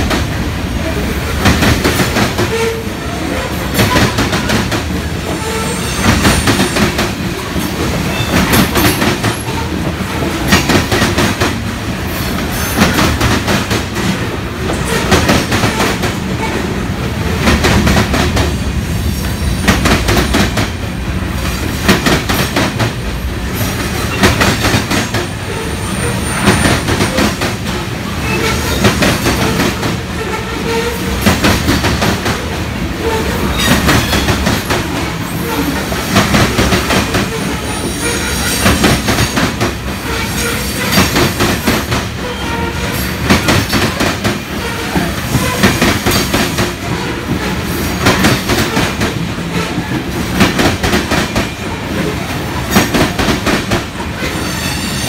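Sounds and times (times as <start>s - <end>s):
train wheels clacking over rail joints: 0.0s - 18.6s, 19.2s - 55.0s
train rumble: 0.0s - 55.0s
high wheel squeal: 5.4s - 6.7s, 54.3s - 55.0s.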